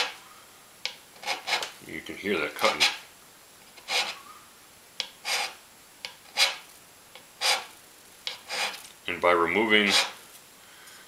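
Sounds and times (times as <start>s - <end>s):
scraper scraping cast iron: 1.2s - 1.8s, 2.5s - 3.0s, 3.8s - 4.2s, 5.1s - 5.6s, 6.2s - 6.6s, 7.4s - 7.7s, 8.3s - 8.9s, 9.8s - 10.2s.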